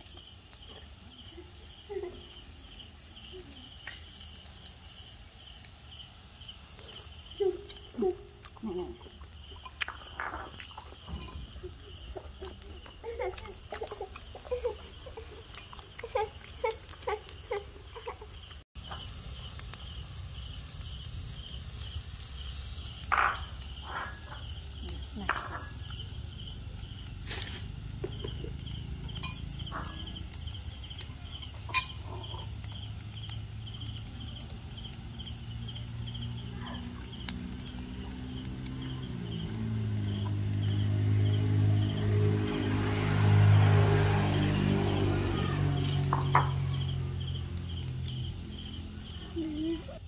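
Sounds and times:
insect chirping: 0.0 - 50.0
utensils clinking on ceramic bowl: 31.4 - 32.1.

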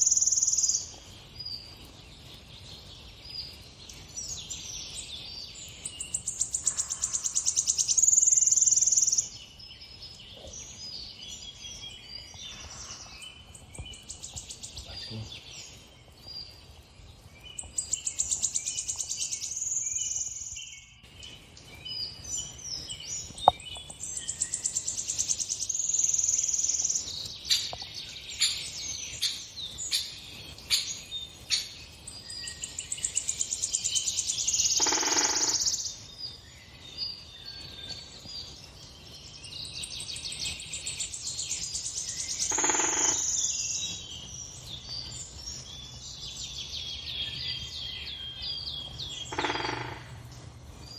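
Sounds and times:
songbirds singing: 0.0 - 50.9.

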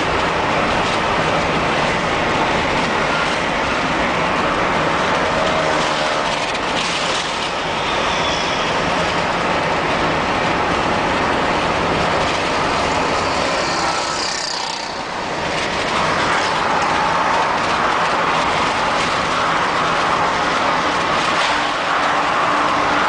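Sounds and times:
car engine hum: 0.0 - 23.0
tyres on the road: 0.0 - 23.0.

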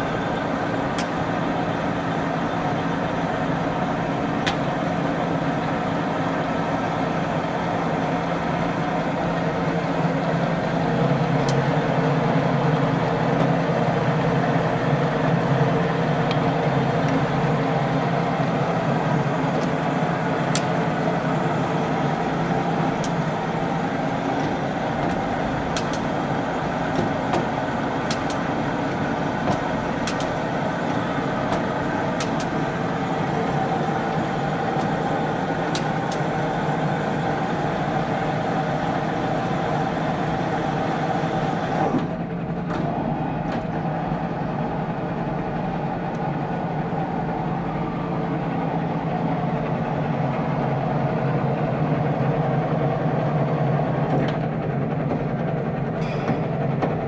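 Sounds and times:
lathe machine hum: 0.0 - 57.0
sharp clicks: 25.7 - 26.1, 29.5 - 30.4.

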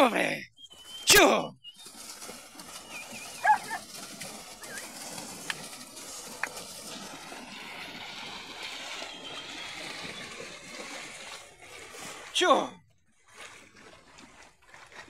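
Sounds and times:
hooves churning through mud: 0.6 - 15.0
sharp warbling call: 2.8 - 3.8.

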